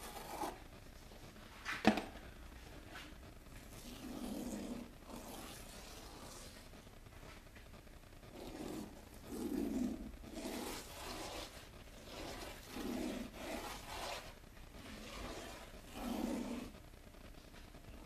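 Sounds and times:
fingertip scraping fine grains: 3.7 - 6.6, 8.3 - 16.8.

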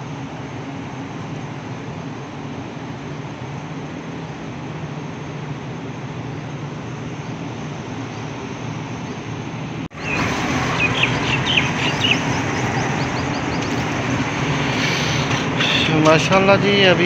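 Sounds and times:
motorcycle passing on wet road: 10.0 - 15.9
bird chirps: 10.0 - 16.0.

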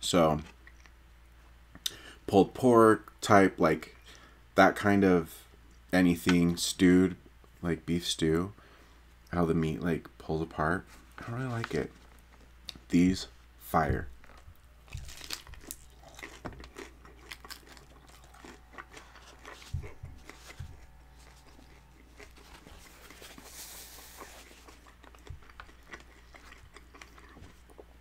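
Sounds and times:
crispy taco shell crunching: 14.2 - 27.9
wet chewing: 14.2 - 28.0.

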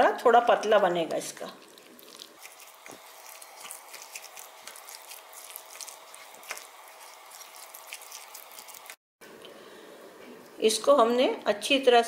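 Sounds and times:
batter squelching: 1.0 - 9.0.

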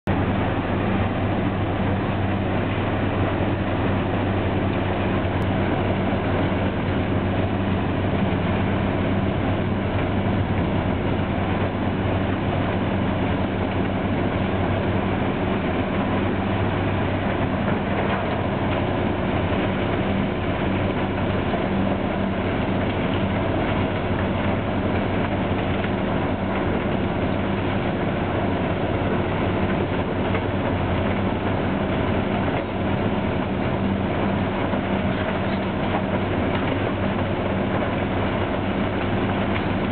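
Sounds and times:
diesel drone: 0.0 - 39.9
rock crusher rumbling: 0.1 - 39.9.

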